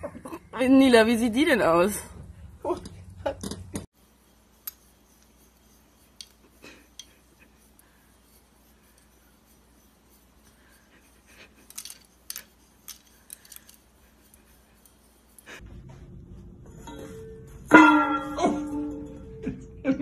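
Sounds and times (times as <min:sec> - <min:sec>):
metal back scratchers clinking: 0:11.2 - 0:15.5.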